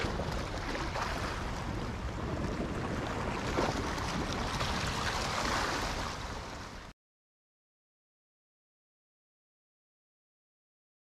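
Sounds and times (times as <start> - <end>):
surf on rocky shoreline: 0.0 - 6.9
wind rumbling on microphone: 0.0 - 6.9.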